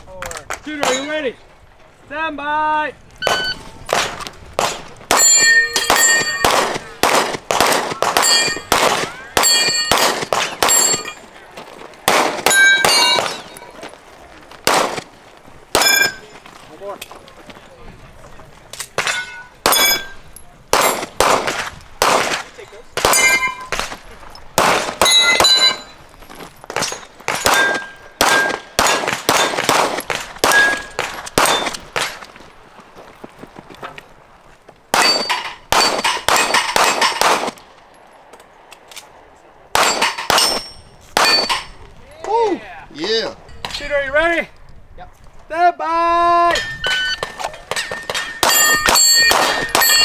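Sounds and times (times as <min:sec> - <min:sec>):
steel target ringing ping: 0:03.2 - 0:03.6, 0:05.2 - 0:06.6, 0:08.2 - 0:08.7
rapid gunshots: 0:05.9 - 0:11.0, 0:12.0 - 0:13.4, 0:14.6 - 0:15.1, 0:20.7 - 0:23.9, 0:24.6 - 0:25.5, 0:27.3 - 0:32.2, 0:34.9 - 0:37.6, 0:48.8 - 0:50.0.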